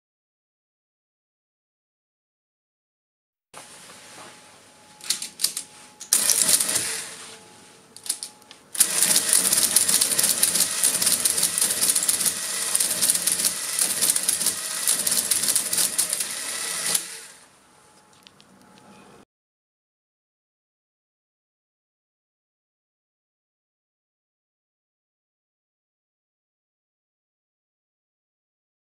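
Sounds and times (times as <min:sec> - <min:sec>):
calculator mechanical clatter: 0:08.8 - 0:17.2.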